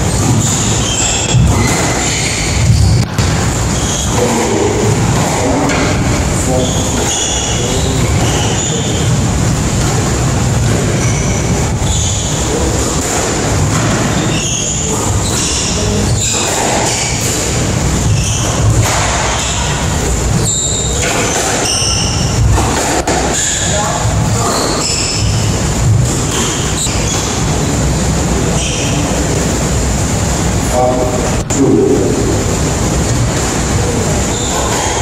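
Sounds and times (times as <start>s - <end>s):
shoes squeaking on wooden floor: 0.0s - 4.4s, 9.8s - 12.6s, 20.4s - 22.4s.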